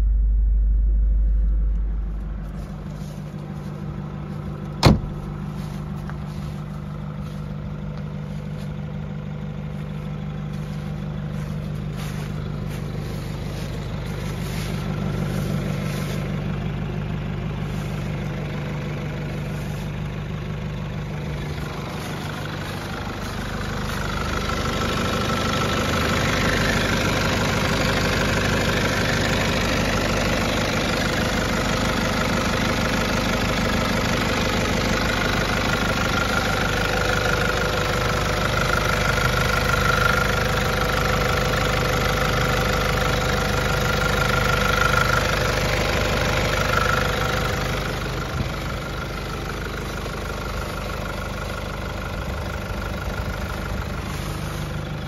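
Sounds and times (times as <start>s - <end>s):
steady whine: 0.0s - 29.3s
diesel engine idling: 0.0s - 55.0s.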